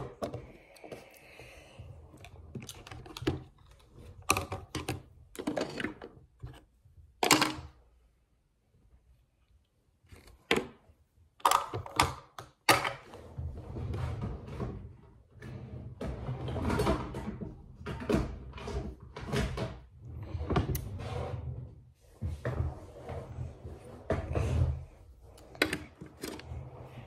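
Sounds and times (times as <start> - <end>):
rustling and rubbing of objects: 15.8 - 27.0.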